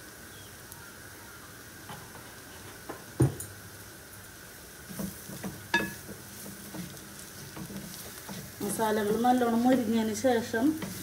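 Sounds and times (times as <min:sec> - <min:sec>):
spices frying in oil: 0:00.0 - 0:11.0
spoon knocking against pan: 0:04.9 - 0:09.8.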